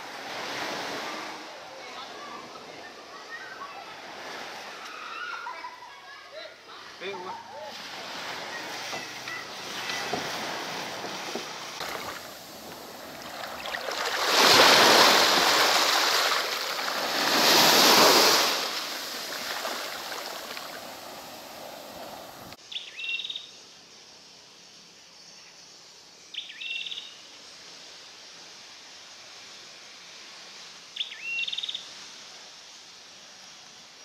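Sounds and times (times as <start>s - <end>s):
surf washing up beach: 0.0s - 22.6s
bird chirping: 22.6s - 23.5s, 26.3s - 27.2s.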